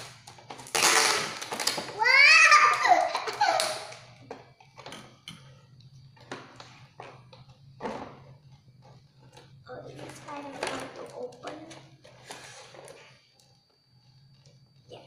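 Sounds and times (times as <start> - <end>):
child laughing and squealing: 2.0 - 4.1.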